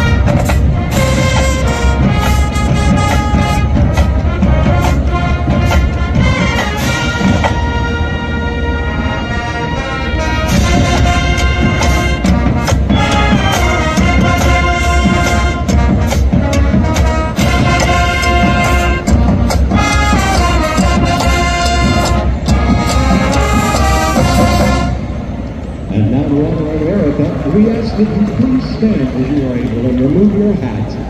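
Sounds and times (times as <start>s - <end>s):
marching drum hits: 0.0s - 7.6s, 10.5s - 25.0s
brass section playing chords: 0.0s - 28.4s.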